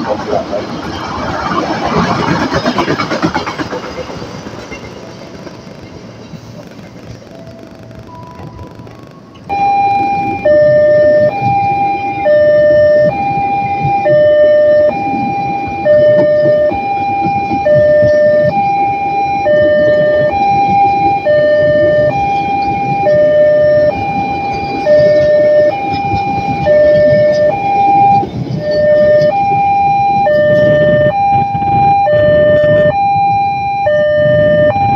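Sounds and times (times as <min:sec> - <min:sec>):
two-tone hi-lo siren: 0:07.3 - 0:34.9.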